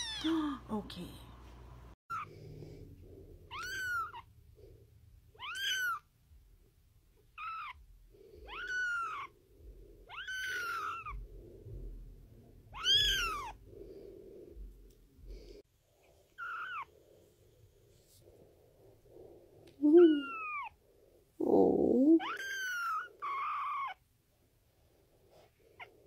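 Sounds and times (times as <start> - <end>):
kitten mewing: 8.4 - 9.3, 12.7 - 13.6, 19.8 - 20.8, 21.4 - 24.0.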